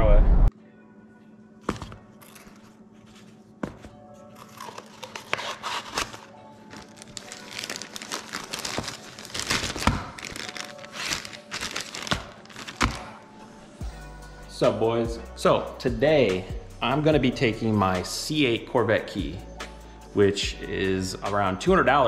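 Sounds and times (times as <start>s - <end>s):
soft background music: 0.0s - 22.0s
plastic bag crinkling: 4.4s - 13.2s.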